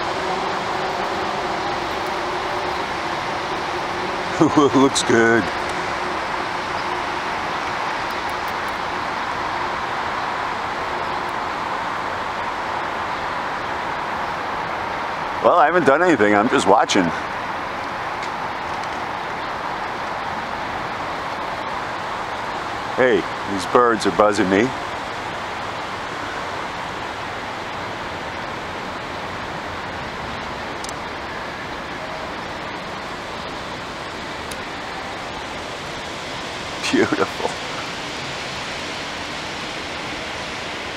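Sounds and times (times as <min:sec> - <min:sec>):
distant city traffic roar: 0:00.0 - 0:40.9.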